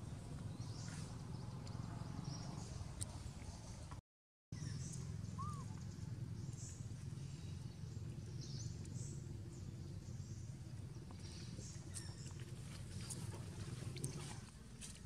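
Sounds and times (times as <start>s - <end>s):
birds chirping: 4.6s - 14.4s.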